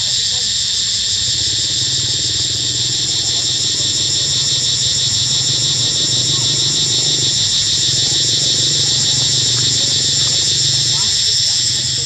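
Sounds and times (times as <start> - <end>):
cicadas chorus droning: 0.0 - 12.0.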